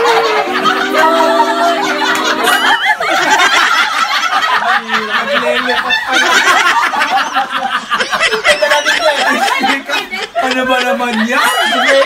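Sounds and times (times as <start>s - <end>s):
high-pitched squeals: 0.0s - 3.0s
group of people laughing: 0.0s - 12.0s.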